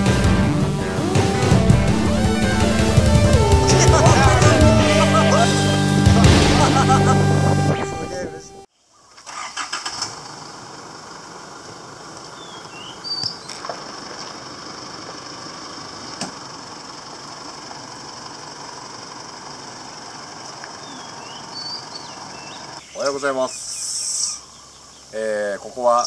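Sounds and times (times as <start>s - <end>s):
low rumble: 0.0s - 8.7s
bird chirps: 12.4s - 13.6s, 20.8s - 25.2s.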